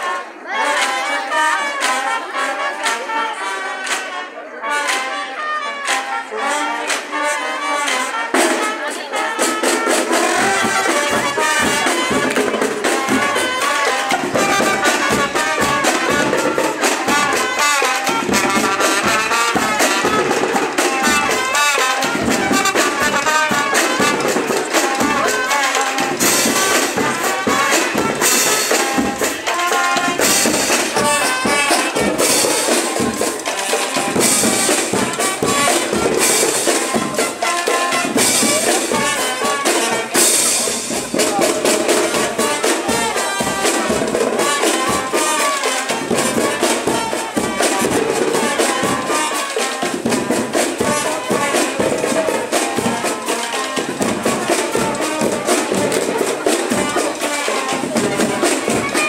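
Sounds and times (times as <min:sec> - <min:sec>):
marching band music: 0:00.0 - 0:59.0.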